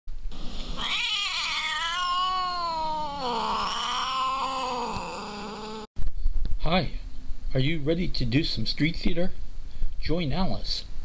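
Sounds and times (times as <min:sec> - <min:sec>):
cat yowling: 0:00.8 - 0:05.9.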